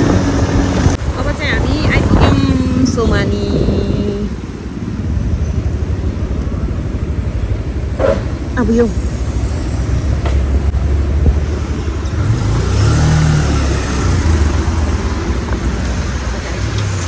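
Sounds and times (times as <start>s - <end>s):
road and wind noise: 0.0s - 17.0s
motorbike engine accelerating: 10.6s - 17.0s.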